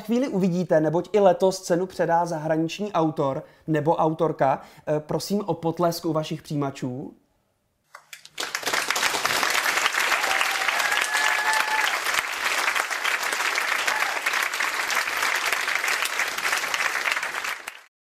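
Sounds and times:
crowd applauding: 0:08.0 - 0:17.9.

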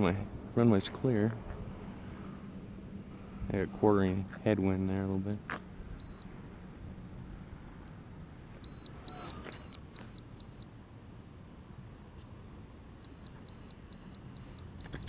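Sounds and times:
short high electronic beeps: 0:08.6 - 0:10.6.

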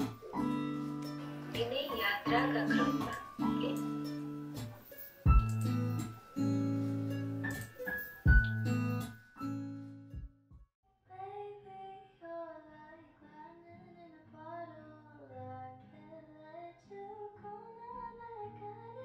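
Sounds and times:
soft high singing voice: 0:11.0 - 0:19.0.

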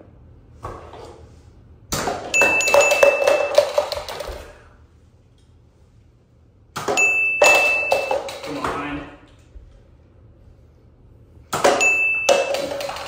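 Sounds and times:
high ringing tone: 0:02.3 - 0:03.9, 0:07.0 - 0:08.5, 0:11.7 - 0:12.8.

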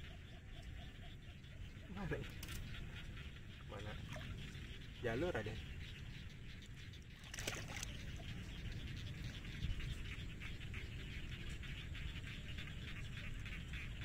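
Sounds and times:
water splashing and dripping: 0:03.6 - 0:05.4, 0:07.0 - 0:08.4.

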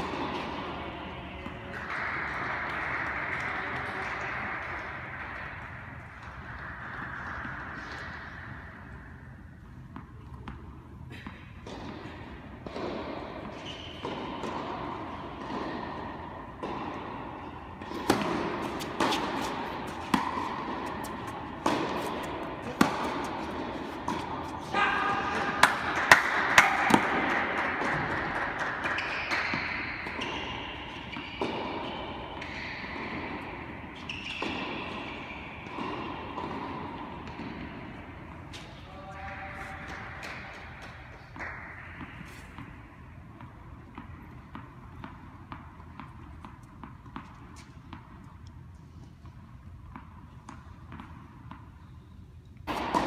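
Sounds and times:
tennis ball bounces: 0:00.0 - 0:53.0
tennis racket strikes: 0:09.9 - 0:38.8.

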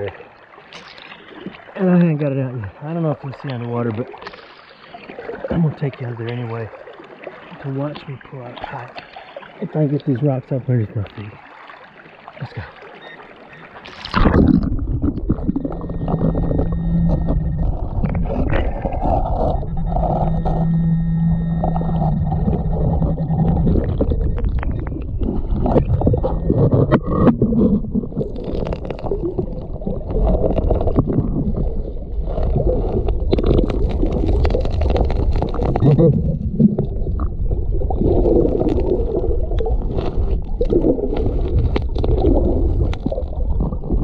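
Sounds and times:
underwater creek water rushing: 0:00.0 - 0:44.0
steady buzzing tone: 0:14.2 - 0:28.3
rocks knocking and scraping: 0:23.6 - 0:31.7, 0:32.4 - 0:37.0.

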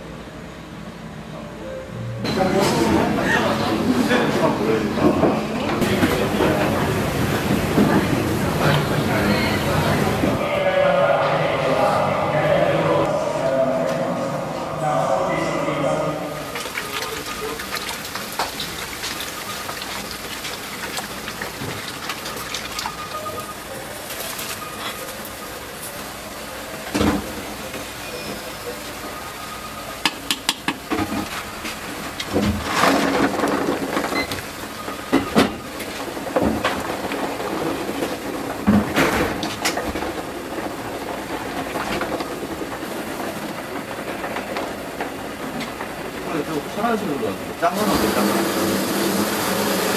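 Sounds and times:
water boiling and bubbling: 0:16.4 - 0:49.9
eggs knocking against pot: 0:30.0 - 0:30.9.

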